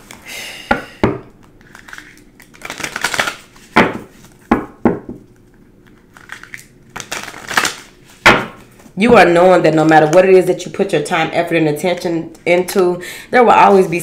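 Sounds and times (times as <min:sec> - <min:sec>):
cards shuffling: 0:01.4 - 0:04.5, 0:05.4 - 0:09.0.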